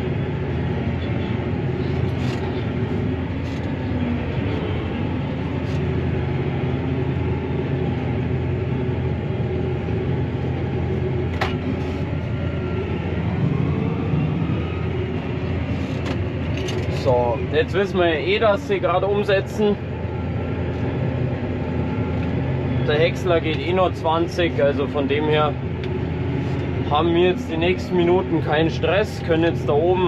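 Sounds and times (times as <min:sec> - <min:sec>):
tractor diesel engine running: 0:00.0 - 0:30.0.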